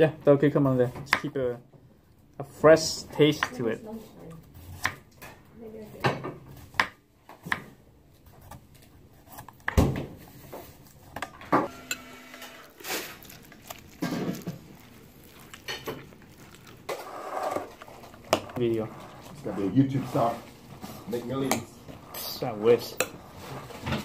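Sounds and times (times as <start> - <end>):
fork scraping glass bowl: 11.7 - 23.8.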